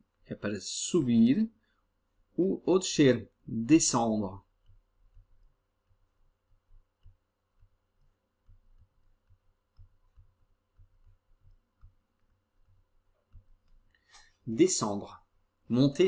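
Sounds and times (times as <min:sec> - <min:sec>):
stylus tapping on drawing tablet: 0:04.4 - 0:13.9.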